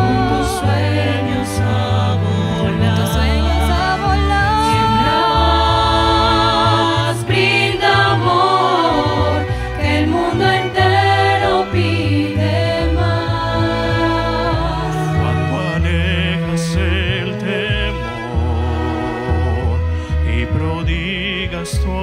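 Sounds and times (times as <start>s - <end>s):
choir singing: 0.0s - 21.6s
string ensemble playing: 0.0s - 22.0s.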